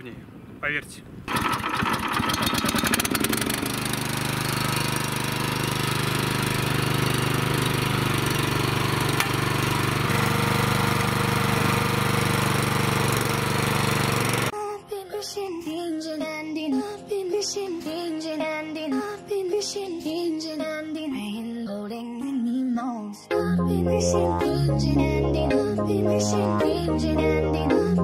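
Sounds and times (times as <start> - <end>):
tiller petrol engine running: 1.3 - 14.5.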